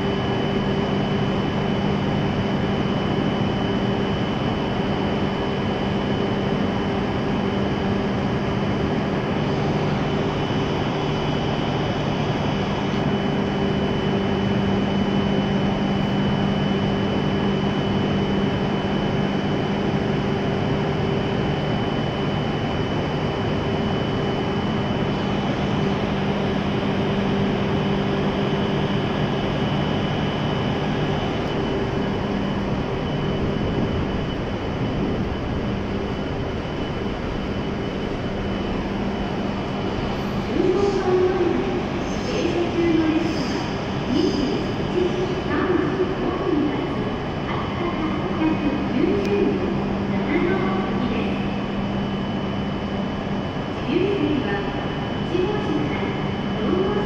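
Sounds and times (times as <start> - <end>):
train equipment humming: 0.0 - 57.0
steady rushing noise: 29.1 - 51.6.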